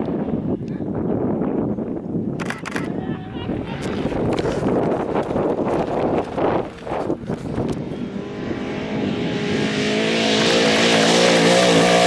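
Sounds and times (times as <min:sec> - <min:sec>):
wind buffeting microphone: 0:00.0 - 0:12.0
race truck engine roaring past: 0:06.6 - 0:12.0.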